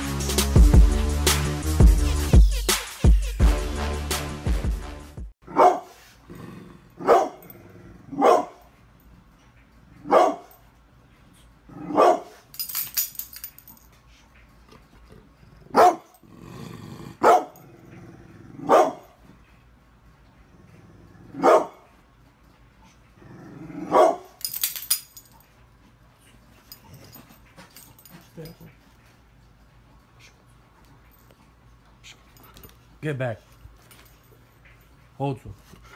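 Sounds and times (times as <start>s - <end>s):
dog barking deeply: 5.5s - 5.9s, 7.0s - 7.4s, 8.1s - 8.6s, 10.1s - 10.5s, 11.7s - 12.4s, 15.7s - 16.1s, 17.1s - 17.6s, 18.6s - 19.1s, 21.3s - 21.8s, 23.8s - 24.3s.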